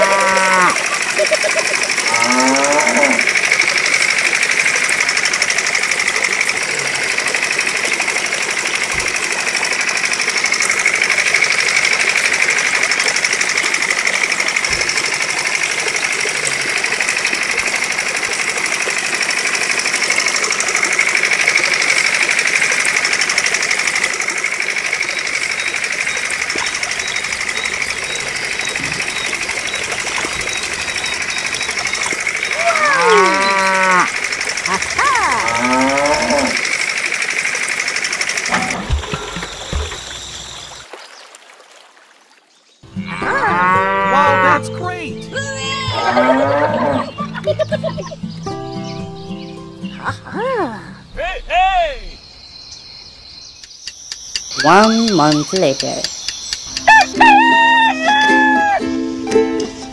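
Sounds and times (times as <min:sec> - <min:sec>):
cow mooing: 0:00.0 - 0:01.0, 0:02.0 - 0:03.3, 0:32.6 - 0:36.7, 0:43.0 - 0:44.6, 0:45.9 - 0:47.1
small electric pump motor buzzing: 0:00.0 - 0:40.7.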